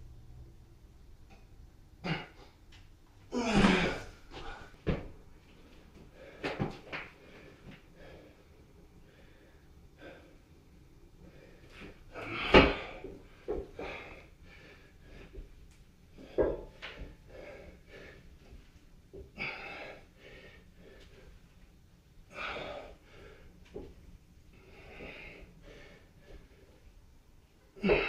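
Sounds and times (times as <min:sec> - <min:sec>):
man breathing hard: 0:06.1 - 0:10.5, 0:11.2 - 0:15.5, 0:16.1 - 0:18.5, 0:19.3 - 0:21.4, 0:22.3 - 0:23.6, 0:24.5 - 0:26.9.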